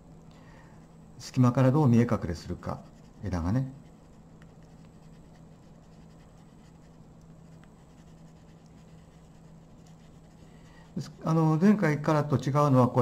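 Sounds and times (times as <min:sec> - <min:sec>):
steady low hum: 0:00.0 - 0:13.0
colored pencil scratching on paper: 0:02.4 - 0:11.4.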